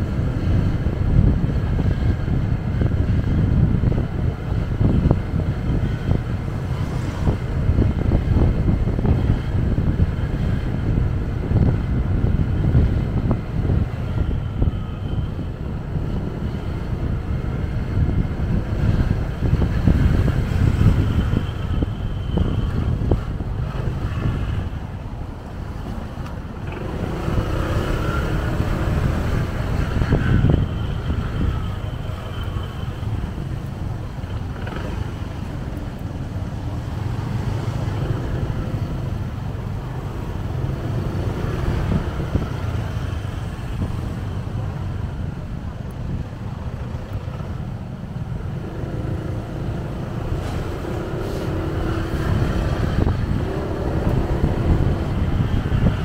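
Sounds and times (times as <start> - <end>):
motorbike engine rumble: 0.0 - 56.0
traffic: 0.0 - 56.0
wind buffeting microphone: 0.0 - 56.0.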